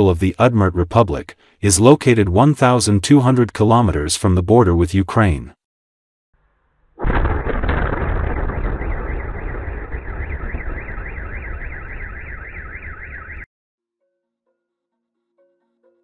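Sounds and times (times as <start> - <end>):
deep explosion rumble: 7.0 - 12.7
car alarm wailing: 8.7 - 13.5.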